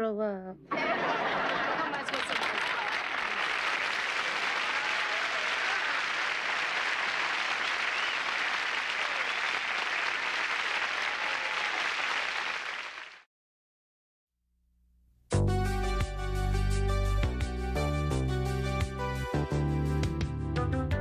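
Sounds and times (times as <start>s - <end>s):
audience applauding: 0.7s - 13.3s.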